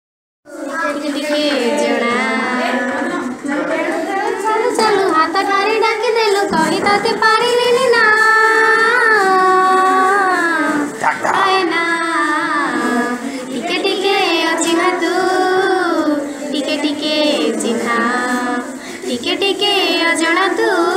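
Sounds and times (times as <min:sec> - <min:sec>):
high solo voice singing: 0:04.8 - 0:20.9.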